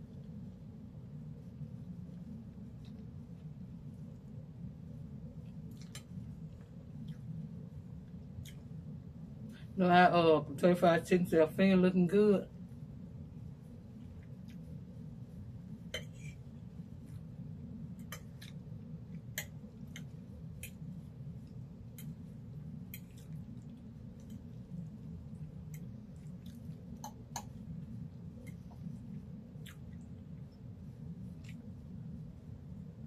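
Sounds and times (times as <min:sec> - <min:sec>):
steady low hum: 0:00.0 - 0:33.0
person chewing: 0:21.5 - 0:28.8, 0:29.5 - 0:30.3.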